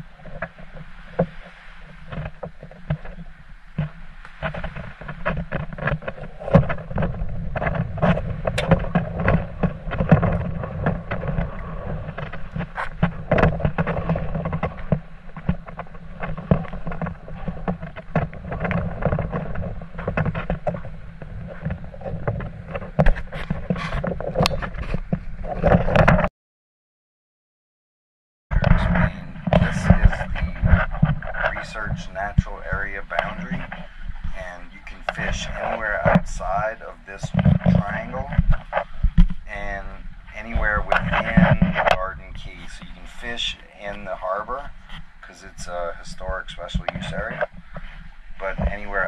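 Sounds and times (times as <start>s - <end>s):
wind buffeting microphone: 0.0s - 26.3s, 28.5s - 49.0s
camera handling bumps: 3.8s - 11.5s.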